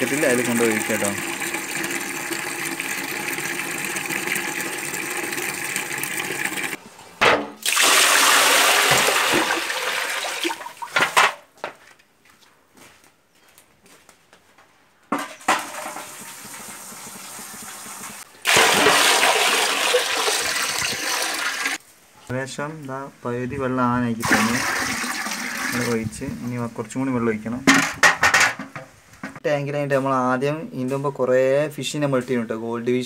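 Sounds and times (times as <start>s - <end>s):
tap water running into bucket: 0.0s - 6.8s, 7.6s - 11.0s, 15.5s - 21.8s, 24.2s - 26.2s
water poured splashing into tank: 7.6s - 11.1s, 15.5s - 21.8s, 24.2s - 26.0s.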